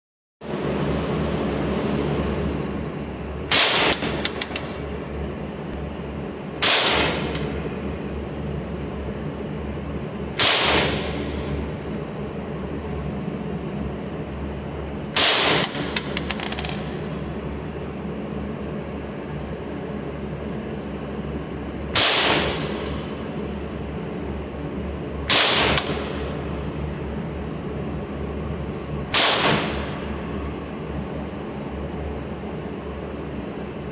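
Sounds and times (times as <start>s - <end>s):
steady low hum: 0.4s - 33.9s
gunshots echoing: 29.1s - 29.8s.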